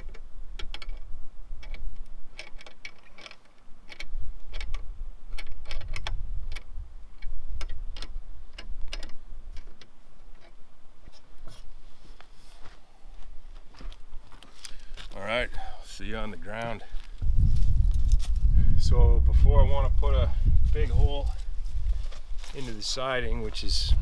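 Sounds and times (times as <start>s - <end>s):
metallic clamp clicks: 0.0s - 11.3s.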